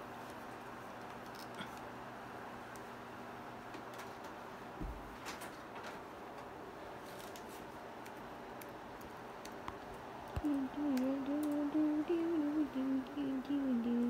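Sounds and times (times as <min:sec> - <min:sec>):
laptop keyboard typing: 0:08.0 - 0:12.6
person humming a tune: 0:10.4 - 0:14.0.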